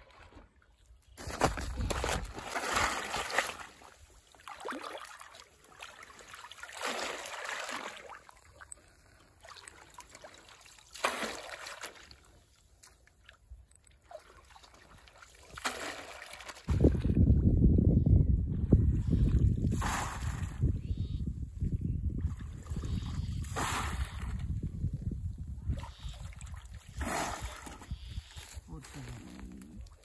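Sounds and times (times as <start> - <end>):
water splashing and sloshing: 0.0 - 17.4, 25.6 - 30.0.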